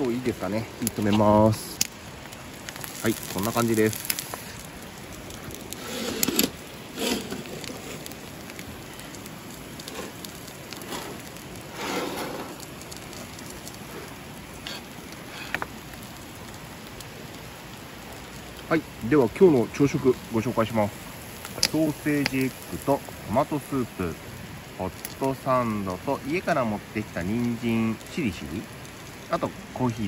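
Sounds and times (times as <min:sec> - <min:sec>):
river flowing: 0:00.0 - 0:18.6.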